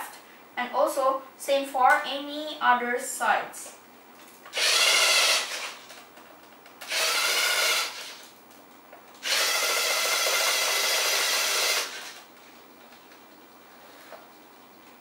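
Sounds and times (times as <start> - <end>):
servo motors whirring: 4.5 - 5.8, 6.9 - 8.2, 9.2 - 12.1.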